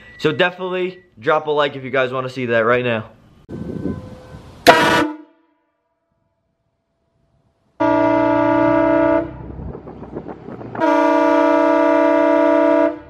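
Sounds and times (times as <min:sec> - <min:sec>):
air horn blasts: 0:03.5 - 0:05.7, 0:07.8 - 0:09.5, 0:10.8 - 0:13.0.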